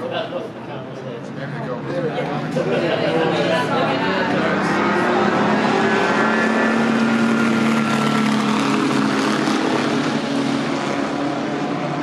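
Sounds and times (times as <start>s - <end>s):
racing car engines passing: 1.2s - 12.0s.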